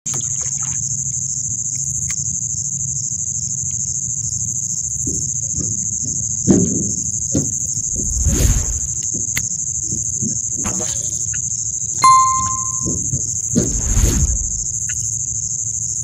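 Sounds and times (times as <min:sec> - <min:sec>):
crickets chirping: 0:00.2 - 0:12.0.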